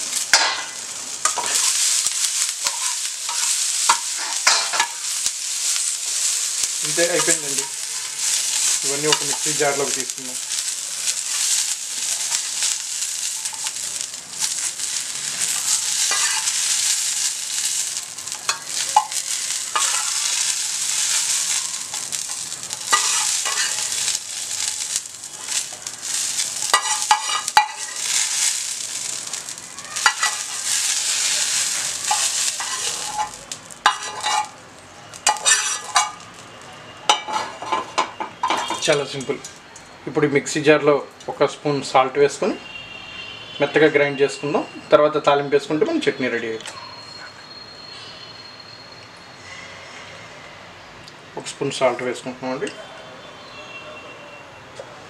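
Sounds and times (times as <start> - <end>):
chillies sizzling in hot oil: 0.0 - 53.8
metal spoon scraping a pan: 0.3 - 10.0, 10.6 - 29.4, 30.0 - 34.6, 35.2 - 36.2.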